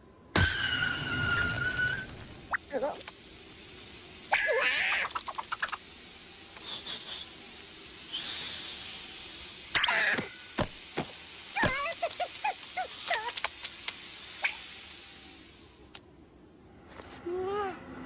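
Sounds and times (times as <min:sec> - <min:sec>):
high hiss: 0:00.8 - 0:16.0.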